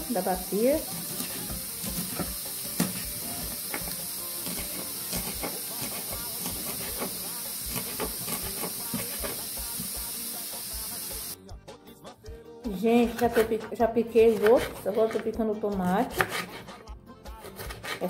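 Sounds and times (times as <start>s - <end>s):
pressure cooker hissing: 0.0s - 11.4s
knife chopping on wooden board: 0.9s - 9.9s, 13.2s - 13.6s, 14.3s - 15.4s, 16.0s - 16.7s, 17.5s - 18.0s.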